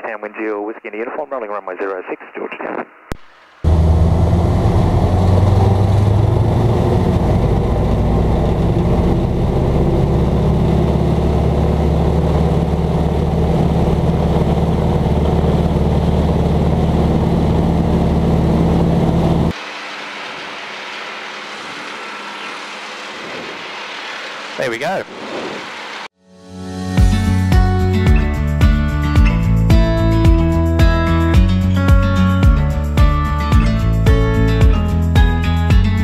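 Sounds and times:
radial aircraft engine running: 3.6s - 26.1s.

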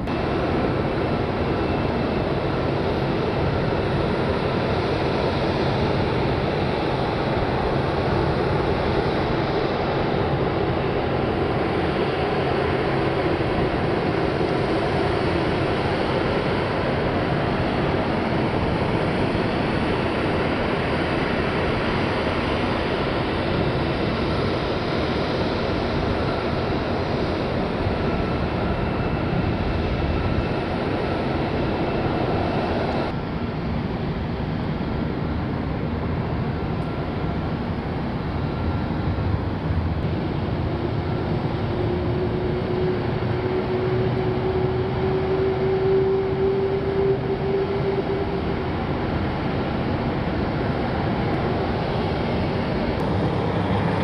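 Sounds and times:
aircraft roar: 0.0s - 54.0s
faint high whine: 39.7s - 54.0s.

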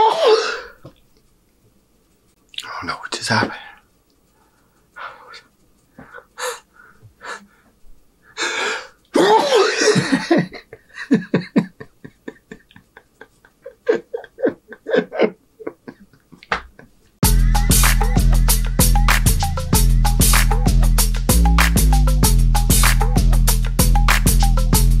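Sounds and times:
man gasping breath: 6.0s - 9.0s
man sneezing loudly: 9.2s - 10.2s
man laughing in short bursts: 9.2s - 17.0s.

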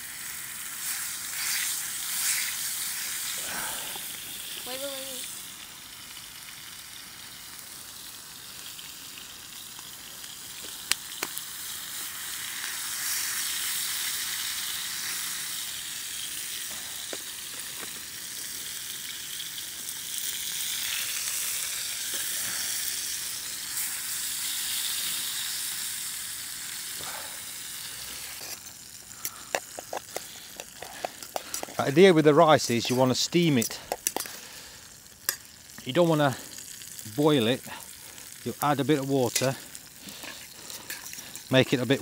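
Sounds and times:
steak sizzling in pan: 0.0s - 42.0s.

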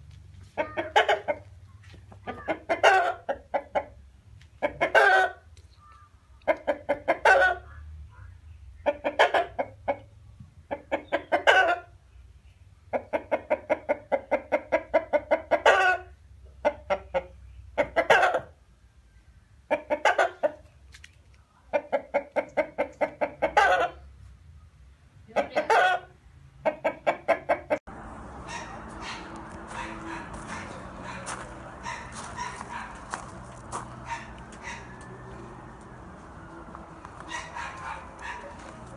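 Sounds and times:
chicken clucking: 0.6s - 1.5s, 2.2s - 4.0s, 4.6s - 5.4s, 6.4s - 7.6s, 8.8s - 10.1s, 10.7s - 11.9s, 12.9s - 18.5s, 19.7s - 20.7s, 21.7s - 24.0s, 26.6s - 27.8s, 28.4s - 38.9s.

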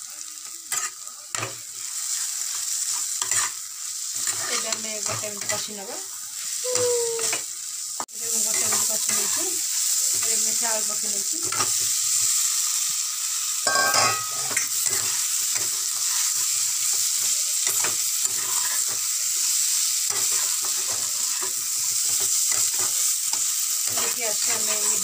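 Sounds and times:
masala sizzling in a pan: 0.0s - 25.0s
metal spatula scraping a pan: 0.7s - 5.8s, 8.5s - 10.4s, 13.7s - 25.0s.

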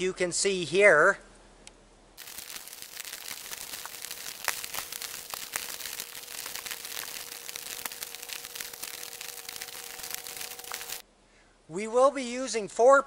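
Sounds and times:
faint steady hum: 1.3s - 11.7s
rope rustling and crackling: 2.2s - 11.0s.

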